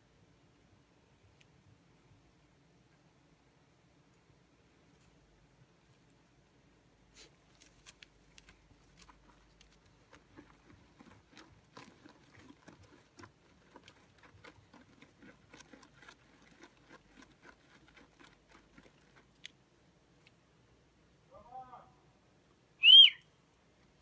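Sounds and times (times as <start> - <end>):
paws digging in stony dirt: 7.2 - 19.4.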